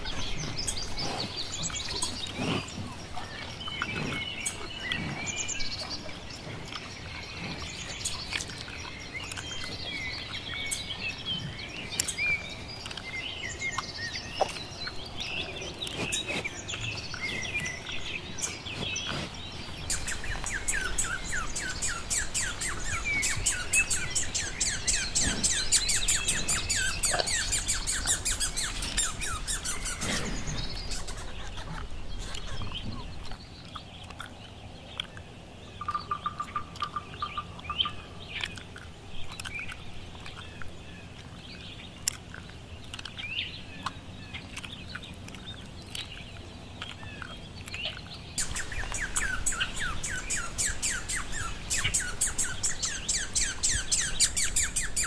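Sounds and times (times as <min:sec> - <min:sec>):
squirrel alarm chatter: 0:19.9 - 0:32.8, 0:48.4 - 0:55.0
squirrel chirps: 0:19.9 - 0:33.4, 0:47.0 - 0:55.0.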